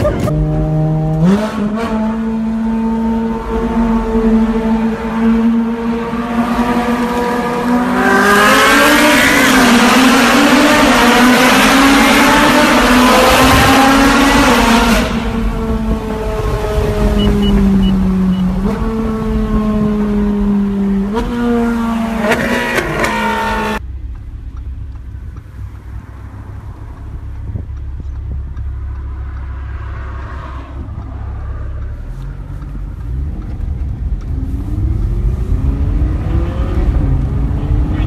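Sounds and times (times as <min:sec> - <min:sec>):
car engine from inside cabin: 0:23.0 - 0:38.0.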